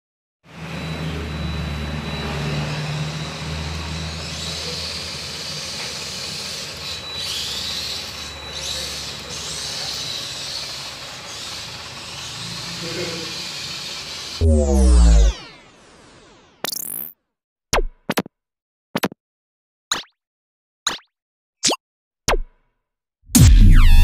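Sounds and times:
thin high whine: 0.5 - 16.6
toy truck motor whirring: 2.5 - 14.4.

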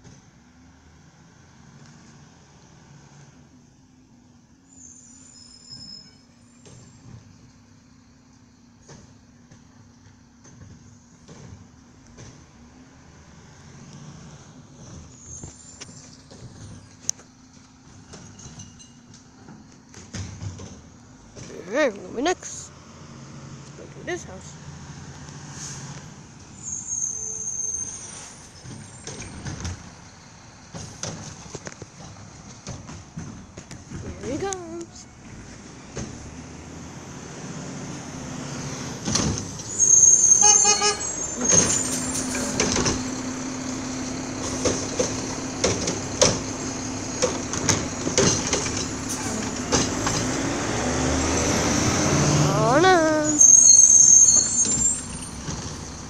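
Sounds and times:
garbage truck engine rumble: 0.0 - 56.0
high-pitched squeal: 39.5 - 56.0
garbage truck arm clanking: 40.9 - 50.7.

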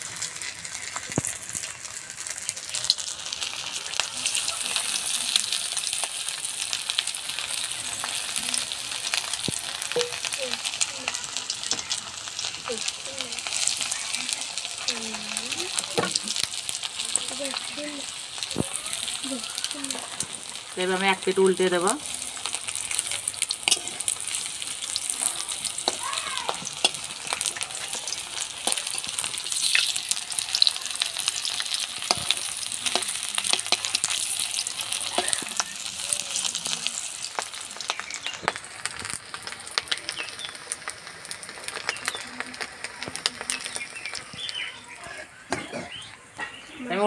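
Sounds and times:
patties sizzling in oil: 0.0 - 47.0
metal spatula scraping and clicking: 23.6 - 24.2.

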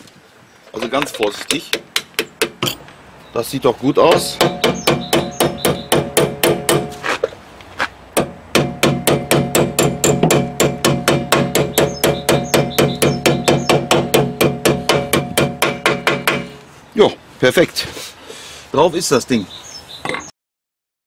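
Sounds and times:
hammer tapping metal with ringing: 4.1 - 6.9.

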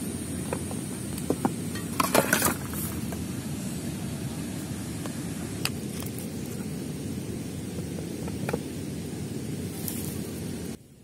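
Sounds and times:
camping stove clicks and clatter: 0.3 - 3.3, 5.0 - 6.7, 7.7 - 8.7.

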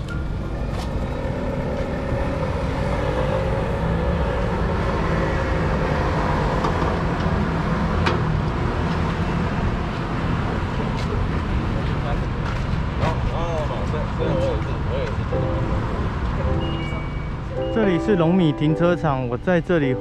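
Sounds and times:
vehicle passing: 0.0 - 11.8
traffic rumble: 0.0 - 20.0.

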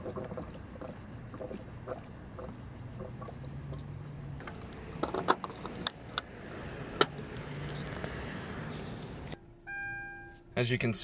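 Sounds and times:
fuel cap clicking: 4.4 - 6.3.

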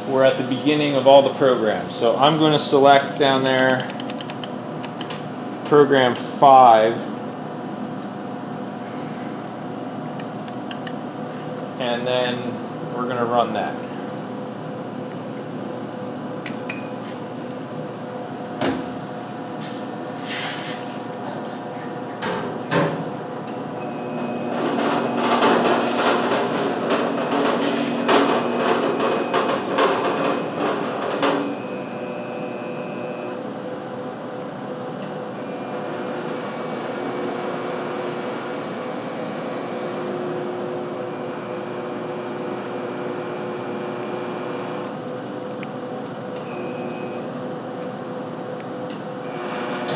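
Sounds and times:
machine hum: 0.0 - 49.9
sharp clicks: 3.4 - 5.2, 10.2 - 11.0.

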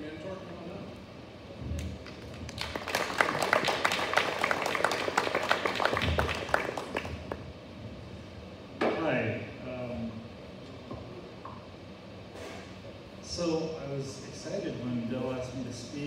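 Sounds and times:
small audience applauding: 2.0 - 7.5.

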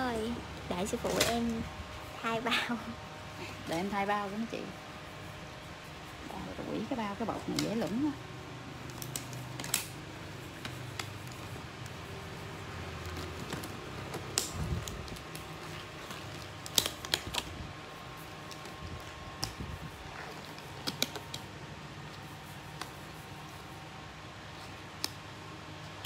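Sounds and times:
low steady hum: 0.0 - 26.0
glove clicks and snaps: 14.1 - 15.5.

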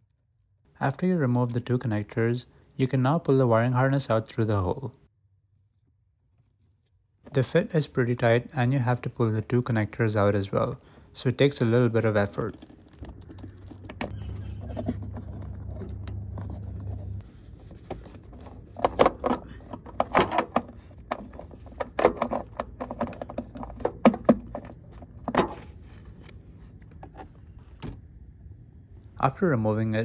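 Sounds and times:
low steady hum: 0.0 - 30.0
plastic connectors clicking and scraping: 17.8 - 27.3.

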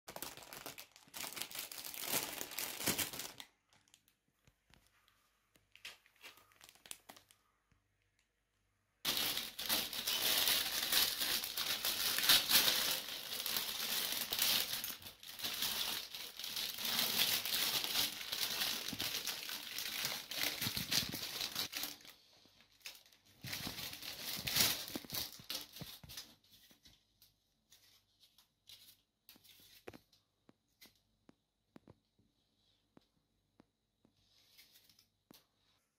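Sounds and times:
plastic film crinkling: 0.1 - 7.5, 9.0 - 27.0.

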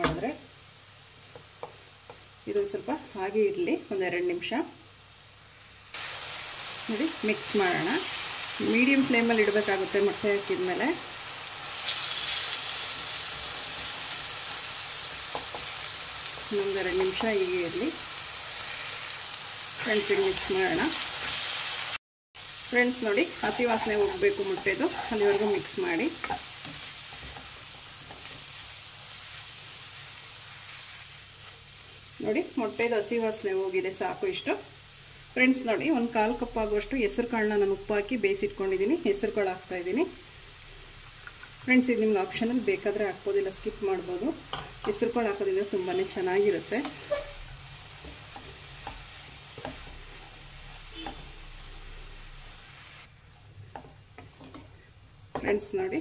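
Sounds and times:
leaves and egg sizzling in a pan: 0.0 - 55.3
wooden spatula stirring: 23.3 - 28.4, 46.8 - 51.4.

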